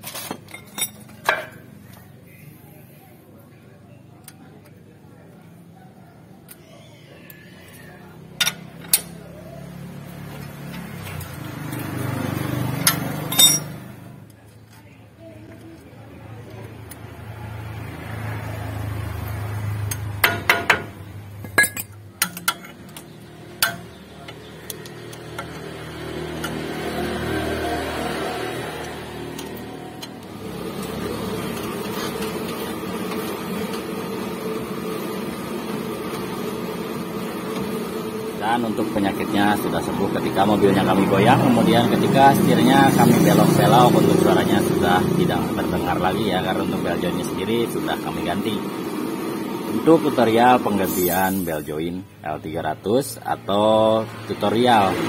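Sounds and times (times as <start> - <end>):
wrench clinking on metal nut: 12.8 - 13.8
steady mechanical hum: 18.9 - 55.0.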